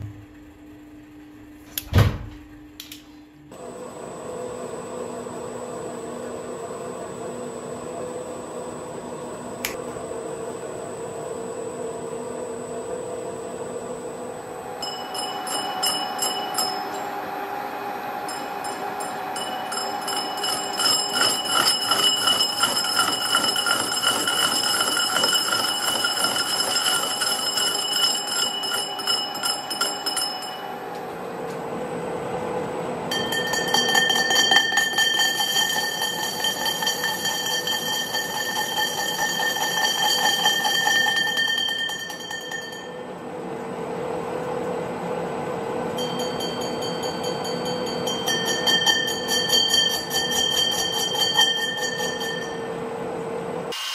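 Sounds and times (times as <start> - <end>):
metal lathe running: 3.6 - 31.0, 33.1 - 43.0
high-pitched ringing tones: 12.3 - 31.0, 33.1 - 43.2, 46.0 - 52.8.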